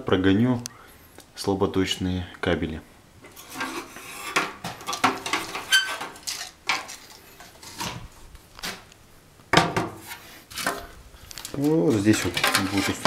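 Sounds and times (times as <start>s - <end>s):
plastic clattering and scraping: 3.2s - 13.0s.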